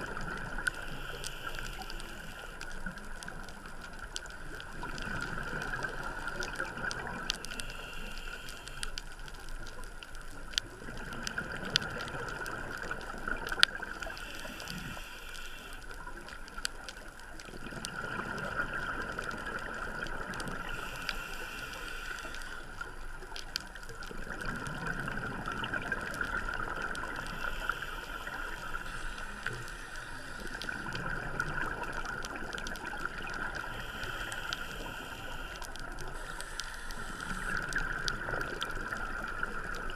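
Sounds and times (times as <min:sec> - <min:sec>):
bubbling rush on exhale: 0:00.0 - 0:09.0, 0:17.5 - 0:39.9
regulator hiss on inhale: 0:00.0 - 0:39.9.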